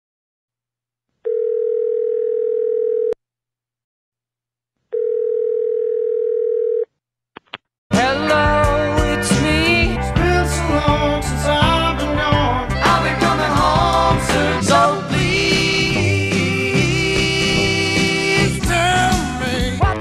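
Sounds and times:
telephone ringback tone: 1.3 - 3.2, 5.0 - 6.8
rock music recording: 7.9 - 20.0.

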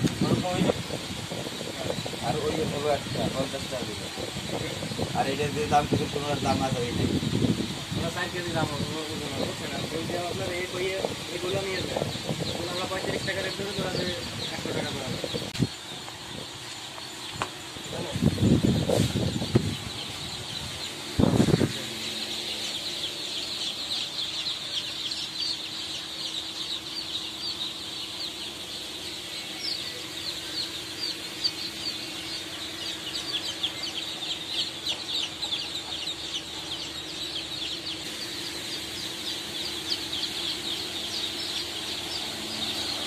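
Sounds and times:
ducklings and chicks peeping: 0.0 - 43.0
electric fan humming: 0.0 - 43.0.

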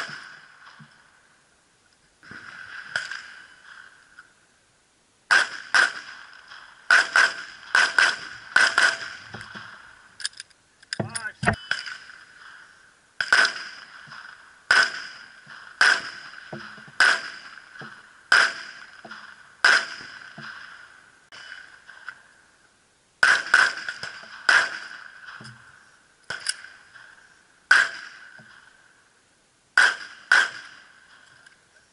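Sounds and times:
pistol shots with ringing echo: 5.3 - 10.1, 11.1 - 22.3, 23.2 - 28.8, 29.8 - 31.2.

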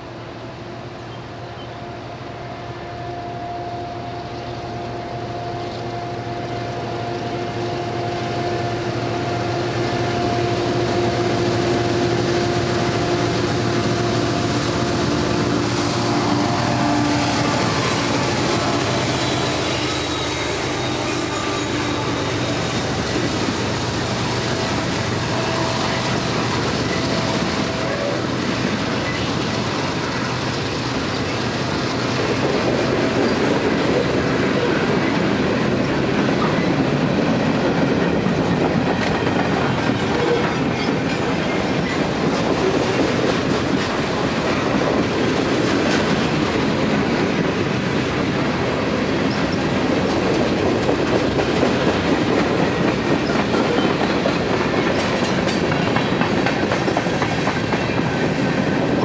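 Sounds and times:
diesel locomotive hum: 0.0 - 59.0
high wheel squeal: 15.4 - 23.5, 24.4 - 35.2.

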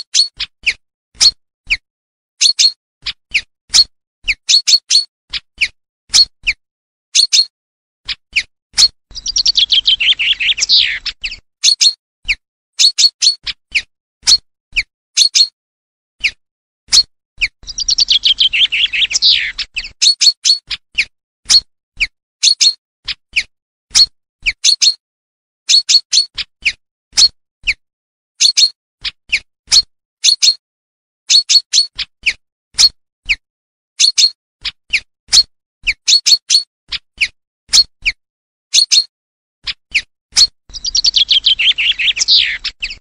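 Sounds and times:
chaffinch song: 2.4 - 6.6, 7.2 - 15.5, 16.2 - 23.5, 34.0 - 43.0
sharp bird call notes: 9.2 - 11.2, 17.7 - 19.8, 40.7 - 43.0.

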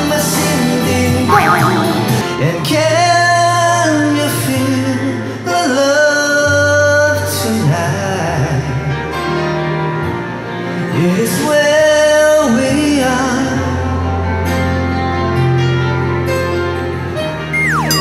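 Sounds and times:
backing track with bass: 1.3 - 3.0.

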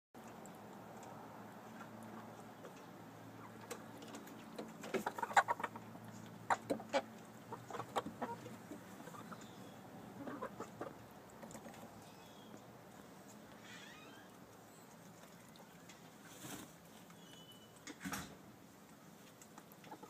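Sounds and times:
hens clucking: 1.8 - 12.1, 19.6 - 20.0.

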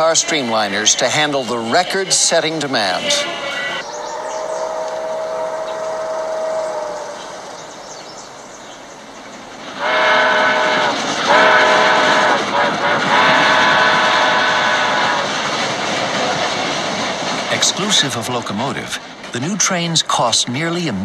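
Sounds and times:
train running: 0.0 - 21.0
steam locomotive whistle blasts: 1.7 - 7.4, 9.8 - 15.3.

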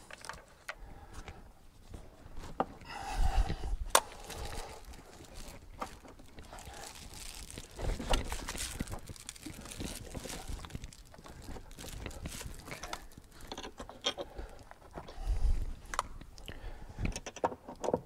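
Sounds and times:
foil insulation mat crinkling: 3.9 - 13.8.

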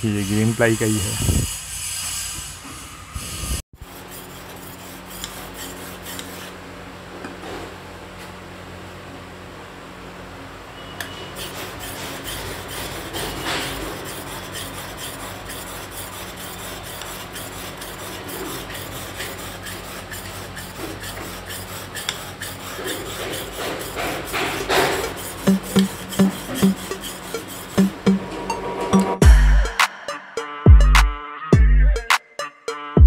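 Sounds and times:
rasping scraping noise: 0.0 - 6.5, 11.3 - 29.2
rhythmic music beat: 25.0 - 33.0.

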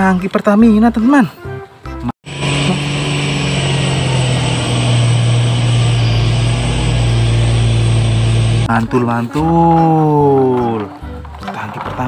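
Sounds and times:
truck diesel engine under load: 2.2 - 8.7.

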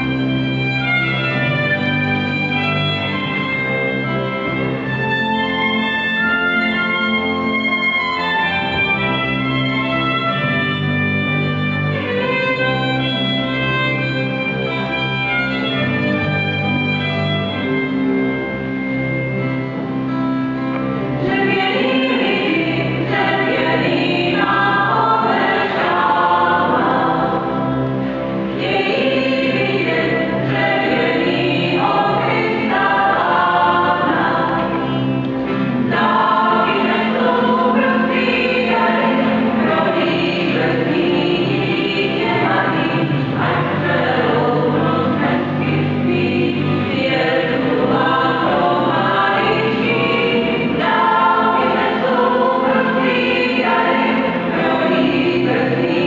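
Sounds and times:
acoustic guitar: 0.0 - 56.0
double bass notes: 0.0 - 56.0
violin: 0.0 - 56.0
mixed vocal group singing: 21.2 - 56.0.

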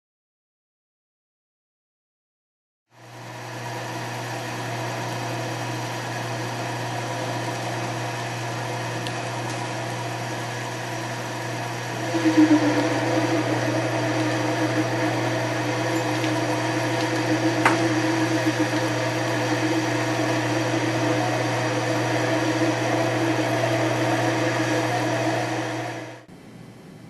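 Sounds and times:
lathe cutting steel: 5.0 - 26.3.

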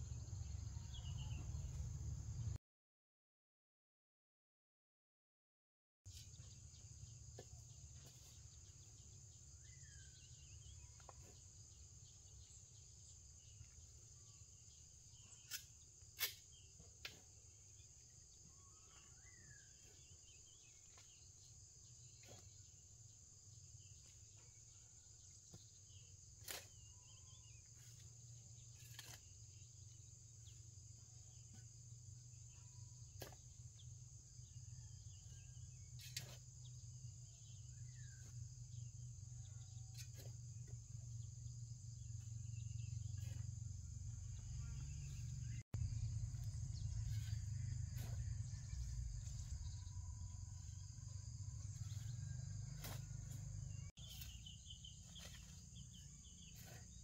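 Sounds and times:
bird chirps: 0.0 - 2.6, 6.1 - 57.0
low rumble: 44.4 - 50.8.

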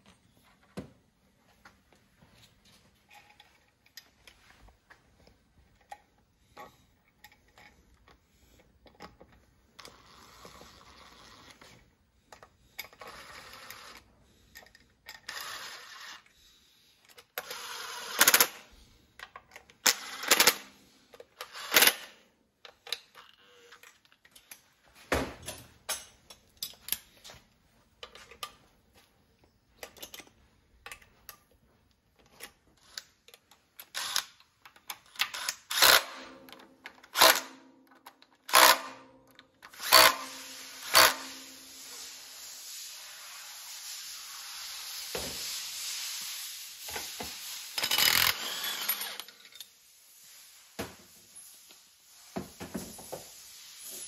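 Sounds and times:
quick ratchet clicks: 33.8 - 36.2
cordless driver running: 47.8 - 49.2.

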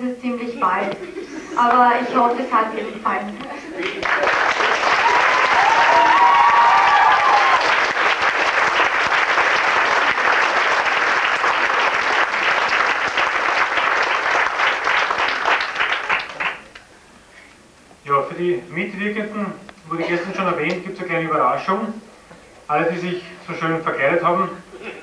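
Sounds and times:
audience applauding: 0.9 - 16.9.

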